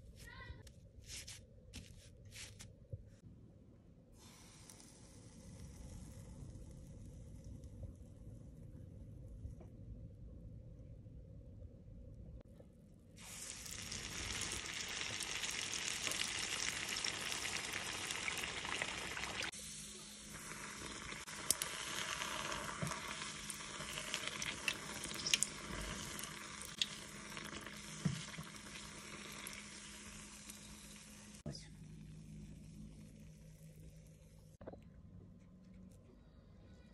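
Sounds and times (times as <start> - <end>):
batter sizzling in hot oil: 4.2 - 7.6, 13.2 - 31.5
oil popping and crackling: 13.2 - 19.5, 20.3 - 31.4.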